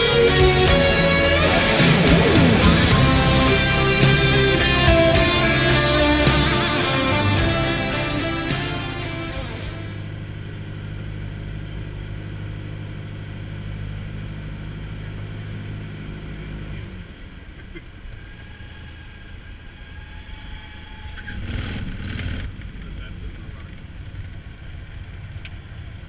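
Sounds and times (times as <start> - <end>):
brief rush: 0.0 - 10.1
aircraft engine and propeller drone: 0.0 - 26.0.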